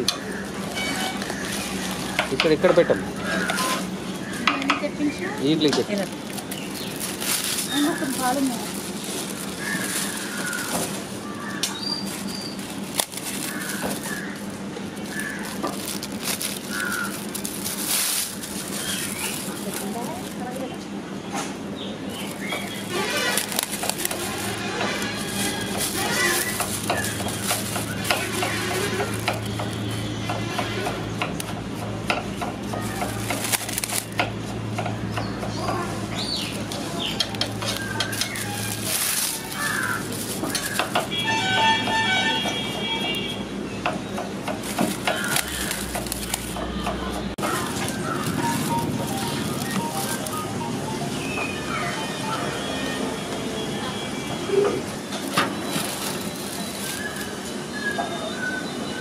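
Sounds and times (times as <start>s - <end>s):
aluminium foil crinkling: 0.3s - 3.8s, 5.0s - 20.8s, 22.1s - 30.2s, 32.6s - 34.5s, 36.2s - 41.3s, 44.4s - 46.8s, 47.4s - 50.7s, 55.0s - 57.6s.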